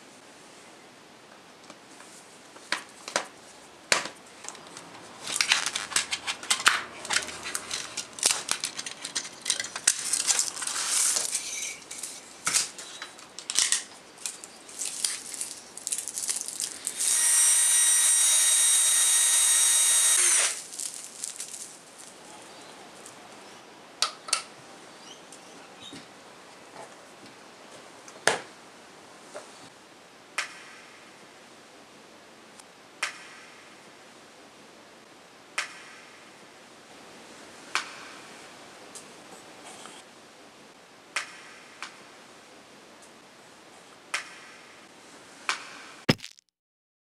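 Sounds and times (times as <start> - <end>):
plastic cassette clattering: 5.3 - 10.7
cordless drill whining: 16.9 - 20.6.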